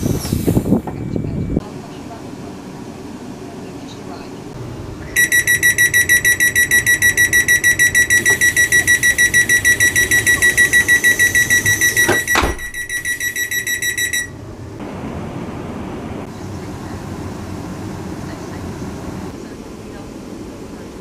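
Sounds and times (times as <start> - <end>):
high electronic door warning beeps: 5.1 - 14.4
sliding doors thudding shut: 8.2 - 13.0.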